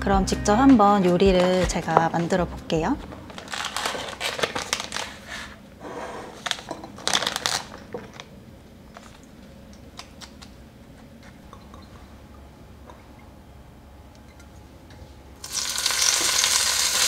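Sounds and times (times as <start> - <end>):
plastic pouch crinkling: 3.2 - 5.6, 6.4 - 8.3.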